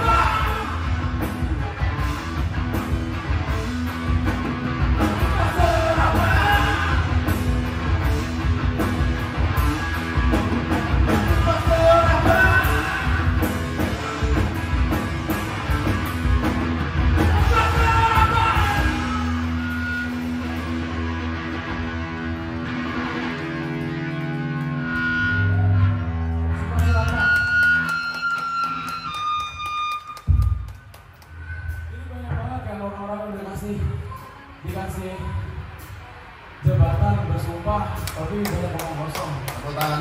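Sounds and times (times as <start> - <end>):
electric bass: 0.0 - 30.8
electric guitar: 0.0 - 32.0
person singing: 5.2 - 7.4, 11.1 - 13.6, 17.2 - 19.7.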